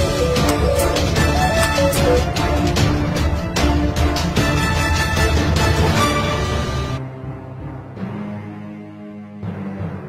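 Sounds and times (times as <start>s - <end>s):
background music with beat: 0.0s - 5.9s.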